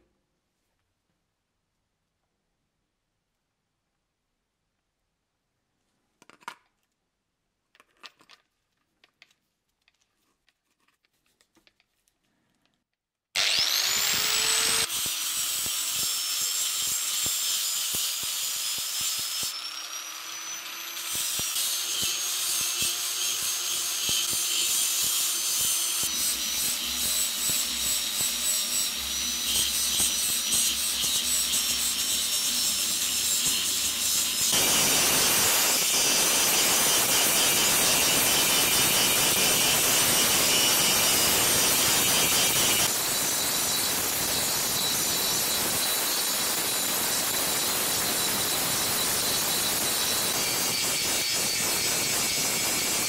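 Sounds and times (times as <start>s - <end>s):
angle grinder grinding metal: 13.4s - 53.0s.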